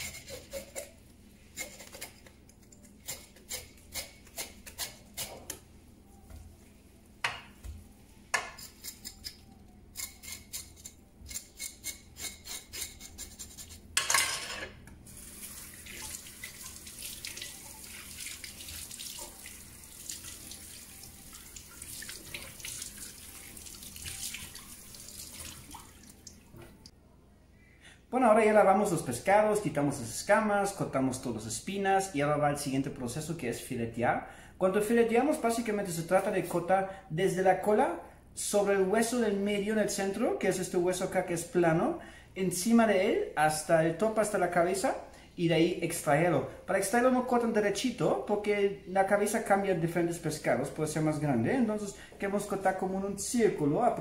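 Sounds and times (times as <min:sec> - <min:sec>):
tap water running into sink: 0:15.2 - 0:26.8.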